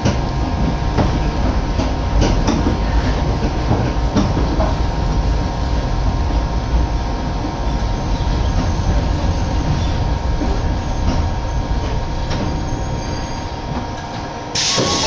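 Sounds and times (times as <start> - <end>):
train wheels rumbling: 0.0 - 15.0
thin wheel squeal: 14.6 - 15.0.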